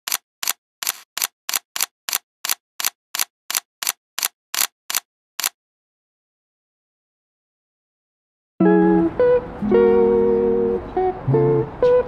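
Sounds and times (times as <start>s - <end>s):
camera shutter clicking: 0.1s - 5.6s.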